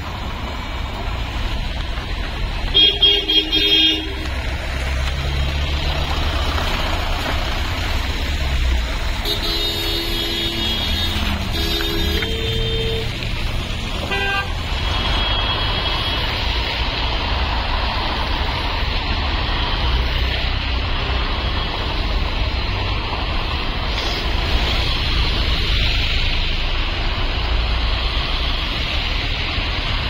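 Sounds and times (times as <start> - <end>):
vehicle engine and road noise: 0.0 - 30.0
car horn toot: 9.2 - 13.1, 14.1 - 16.2.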